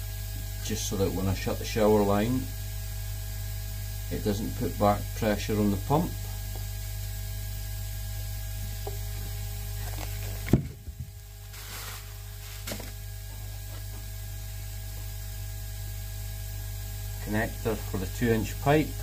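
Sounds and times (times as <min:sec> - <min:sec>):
steady low hum: 0:00.0 - 0:19.0
faint rustles and clicks: 0:09.8 - 0:14.1.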